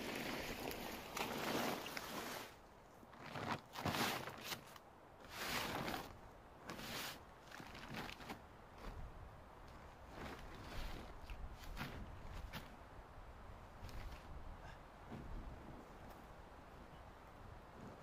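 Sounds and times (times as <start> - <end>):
plastic tarp rustling: 0.0 - 9.1, 9.8 - 12.7
shuffling on moss: 0.0 - 9.1, 9.7 - 12.8.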